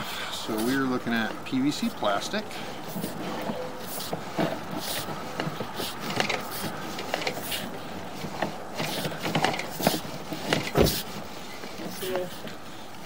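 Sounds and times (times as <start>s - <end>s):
cable clicks knocks and scrapes: 2.9s - 12.6s.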